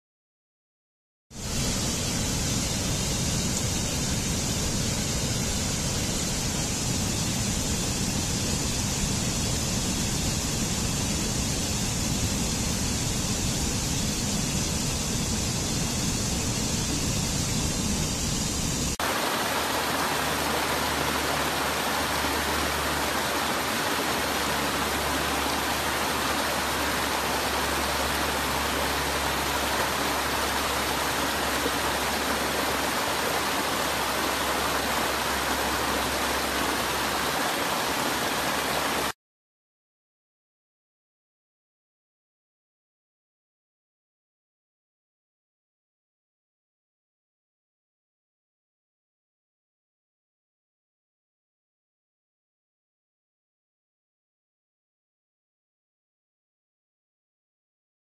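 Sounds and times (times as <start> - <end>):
falling water rushing: 1.4 - 39.2
stream rushing over stones: 18.9 - 39.1.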